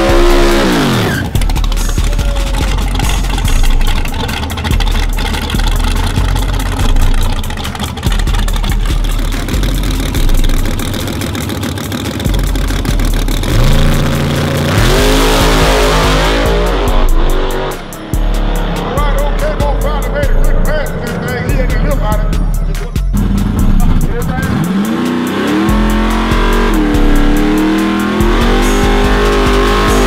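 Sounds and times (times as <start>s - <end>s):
engine revving and launching: 0.0s - 6.8s, 12.9s - 19.5s, 24.3s - 30.0s
car engine idling roughly: 0.1s - 28.3s.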